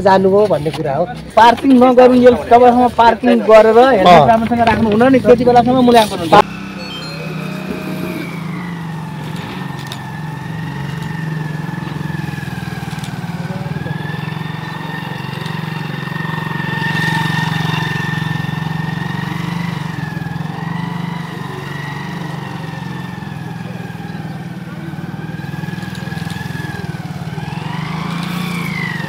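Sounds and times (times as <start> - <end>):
motorcycle engine running: 1.4 - 29.0.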